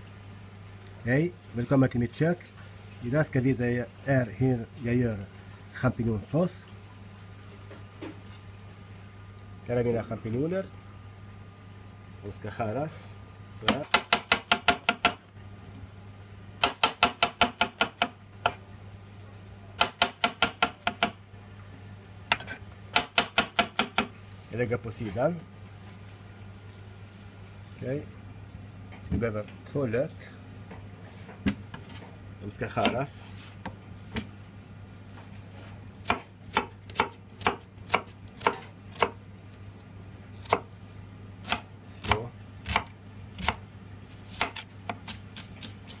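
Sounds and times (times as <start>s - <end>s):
knife slicing onion on plastic board: 22.3s - 24.1s, 32.8s - 34.3s, 36.0s - 39.2s, 40.4s - 40.8s, 41.4s - 46.0s.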